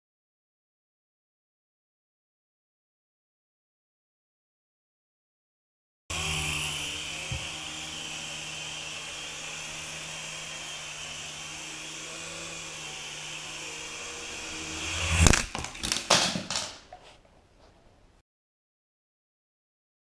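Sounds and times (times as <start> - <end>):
toy helicopter motor whirring: 6.1 - 15.4
rotor blades clattering on wooden floor: 15.3 - 17.2.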